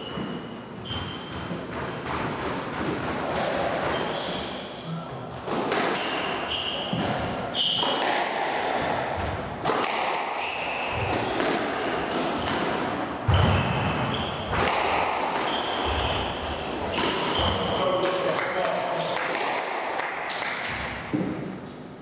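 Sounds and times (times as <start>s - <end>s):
shoes squeaking on wooden floor: 0.0s - 2.1s, 3.8s - 4.8s, 5.4s - 8.0s, 13.3s - 14.5s, 15.4s - 17.8s
squash ball cracks: 5.5s - 6.3s, 7.8s - 8.9s, 9.6s - 12.9s, 14.5s - 15.9s.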